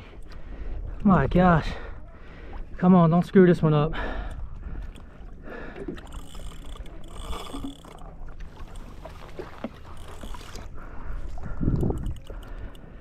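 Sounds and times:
water sloshing against hull: 0.0s - 13.0s
faint mechanical clicks: 4.1s - 10.7s, 11.4s - 13.0s.

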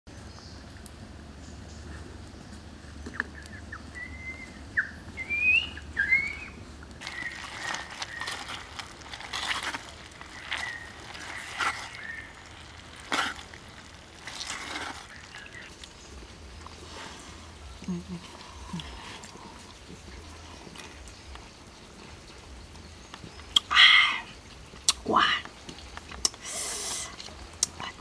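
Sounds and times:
chopsticks scraping a clay pot: 7.0s - 15.2s
bird chirps: 10.2s - 12.5s.

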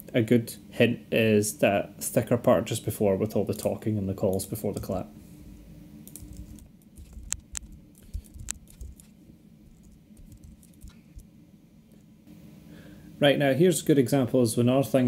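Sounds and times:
keyboard and mouse clicks: 6.1s - 9.1s, 9.8s - 11.2s.

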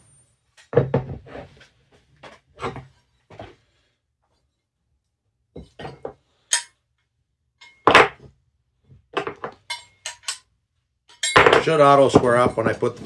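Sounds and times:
steel pieces clinking together: 5.9s - 6.8s, 7.6s - 7.9s, 9.4s - 13.0s.

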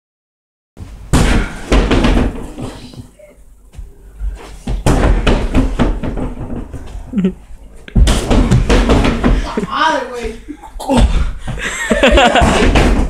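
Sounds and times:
punches thudding on punching bag: 1.1s - 2.7s, 4.7s - 6.8s, 8.0s - 9.5s, 12.2s - 13.0s.

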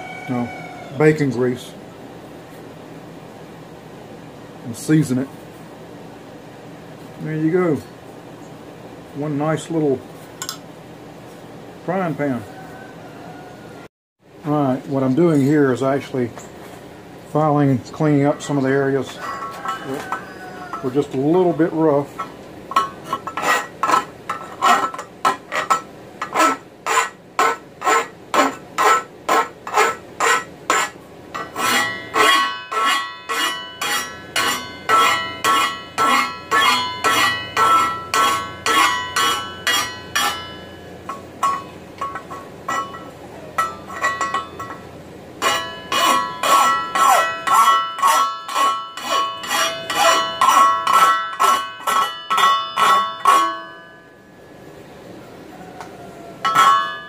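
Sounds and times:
steel pan ringing: 18.1s - 54.7s, 56.4s - 57.0s
hand file rasping on steel: 22.8s - 43.1s, 45.4s - 53.7s.

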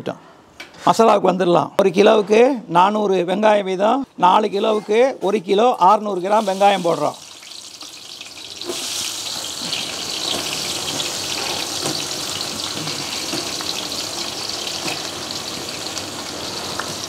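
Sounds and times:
onions sizzling in hot oil: 6.0s - 17.0s.

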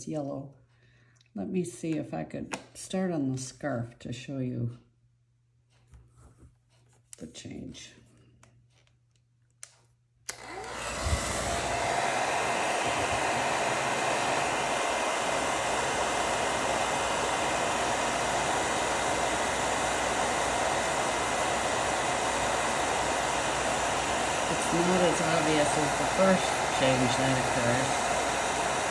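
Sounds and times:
heat tool fan blowing: 10.3s - 28.9s.

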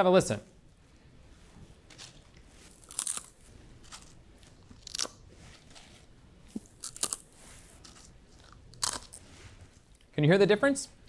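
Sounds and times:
potato chips crunching: 1.9s - 9.2s.

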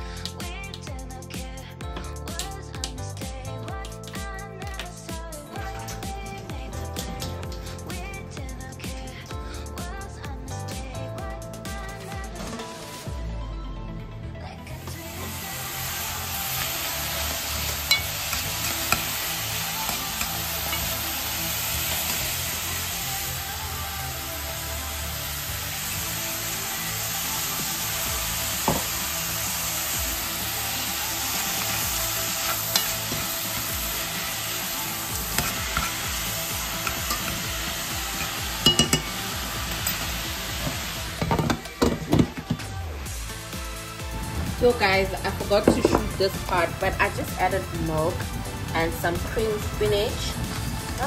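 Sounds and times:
food sizzling in pan: 14.8s - 42.6s
utensil knocking against pot: 38.6s - 39.1s.

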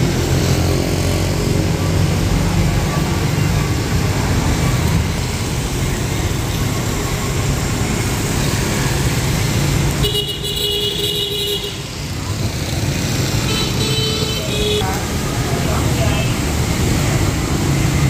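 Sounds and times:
motorbike and traffic engines: 0.0s - 18.0s
vehicle horn: 10.0s - 11.9s, 13.4s - 14.8s.

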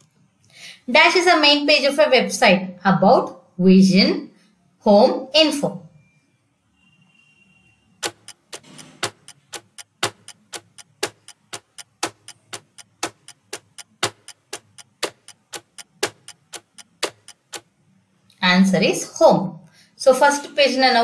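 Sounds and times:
ticking clock countdown: 8.0s - 17.8s.

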